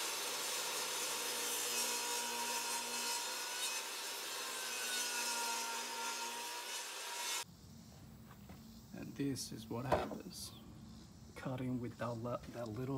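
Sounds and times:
table saw cutting wood: 0.0 - 7.4.

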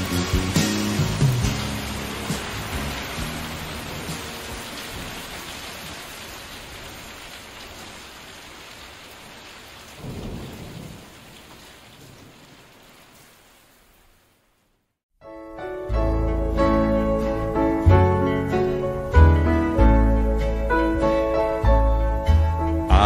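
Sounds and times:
steady rain: 0.0 - 15.0, 16.3 - 23.0
low roll of thunder: 10.0 - 12.7.

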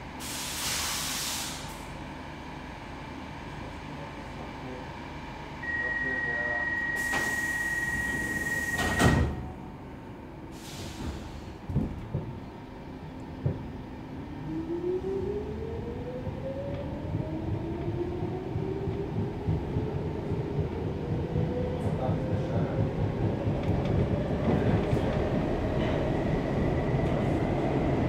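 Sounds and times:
train knocks starting: 6.8 - 9.6, 10.7 - 12.4
train doors closing thud: 7.0 - 9.6, 10.8 - 12.4
train running rumble: 8.8 - 14.2, 15.9 - 28.0.

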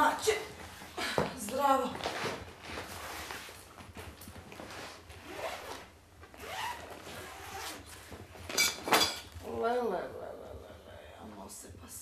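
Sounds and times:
suitcase zipper opening: 5.1 - 7.9.

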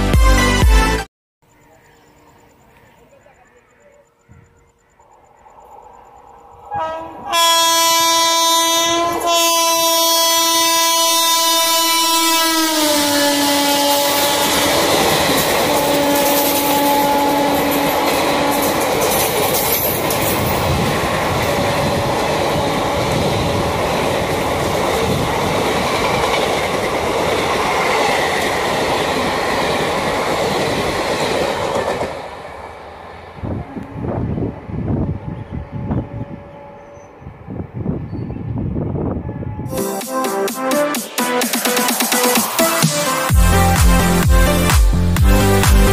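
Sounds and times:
train coaches rushing past: 4.2 - 45.7
train horn: 6.6 - 19.1, 35.0 - 37.4, 39.0 - 40.3.

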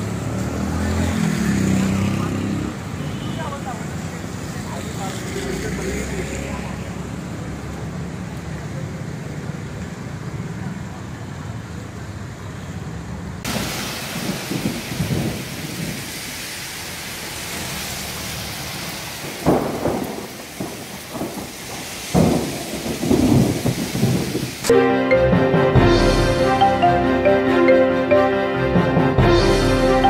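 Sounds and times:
heavy rain pouring: 0.0 - 12.1, 12.9 - 24.7
thunder rumbling: 13.5 - 24.7
music: 24.7 - 30.0.

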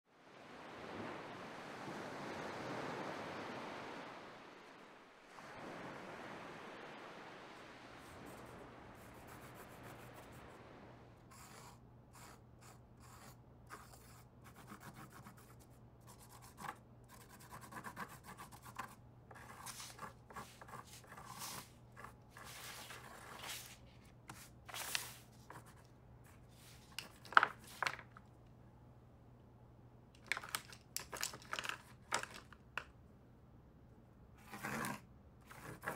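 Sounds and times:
sea surf: 0.1 - 11.2
crayon scratching on paper: 11.3 - 24.4, 34.4 - 35.9.

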